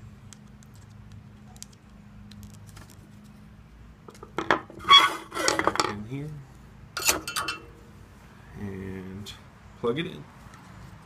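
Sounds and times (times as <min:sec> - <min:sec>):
metallic tools clinking and clattering: 0:07.0 - 0:07.7.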